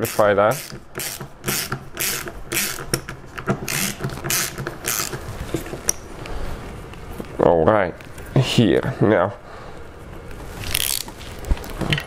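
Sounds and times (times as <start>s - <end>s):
screwdriver scratchy rasp: 0.0s - 3.0s, 3.6s - 5.2s.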